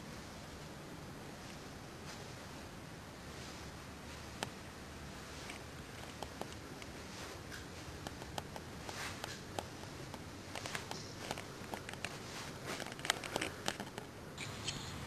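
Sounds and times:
steady hiss: 0.0s - 15.0s
handling clicks and rustles: 5.3s - 14.4s.

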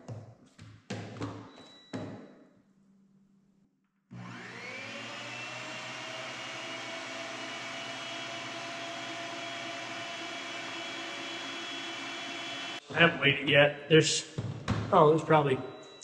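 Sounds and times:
meat grinder motor whining: 4.1s - 12.8s.

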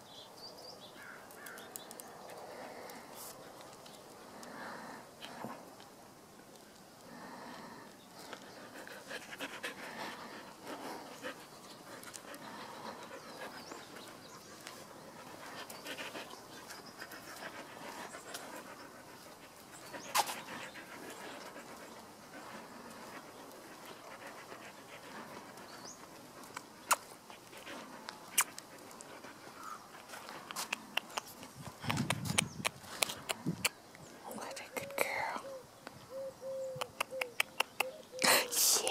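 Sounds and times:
dog panting: 8.2s - 33.7s.

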